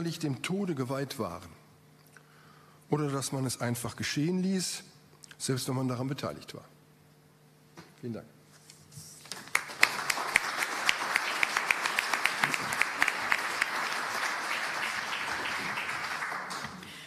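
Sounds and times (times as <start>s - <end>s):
audience applauding: 9.3s - 17.0s.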